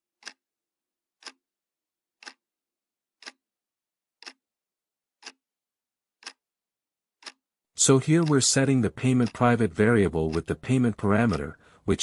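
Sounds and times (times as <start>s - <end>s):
faint clock ticking: 0.2s - 0.5s, 1.2s - 1.5s, 2.2s - 2.5s, 3.2s - 3.5s, 4.2s - 4.5s, 5.2s - 5.5s, 6.2s - 6.5s, 7.2s - 12.0s.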